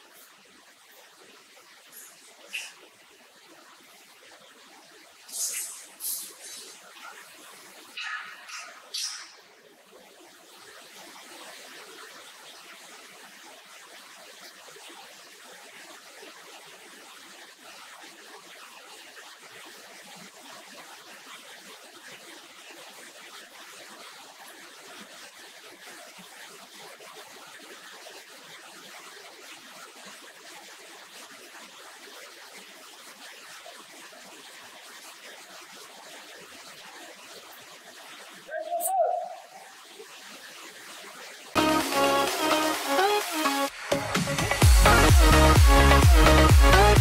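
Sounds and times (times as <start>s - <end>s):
steady hiss: 1.8s - 3.1s, 5.2s - 9.5s.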